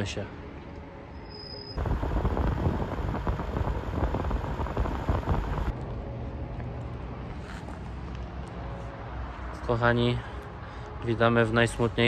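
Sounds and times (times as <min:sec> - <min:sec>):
low steady hum: 0:01.8 - 0:05.7
wind buffeting microphone: 0:01.8 - 0:05.8.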